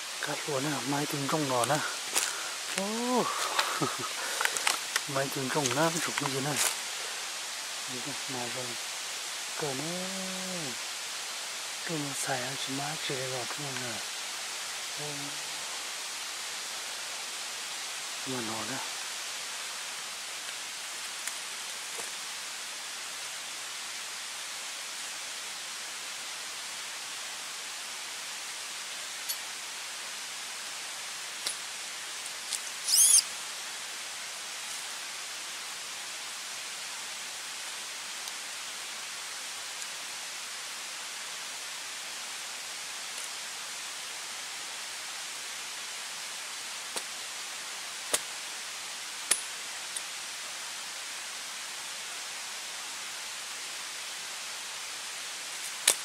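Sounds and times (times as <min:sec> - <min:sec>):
steady hiss: 0:00.0 - 0:56.0
twigs snapping: 0:03.6 - 0:06.8
rat squeaking: 0:32.7 - 0:33.3.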